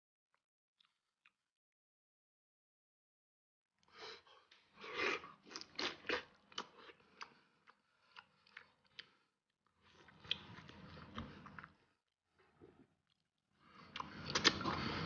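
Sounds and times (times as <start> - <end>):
close-up chewing: 13.9 - 14.8.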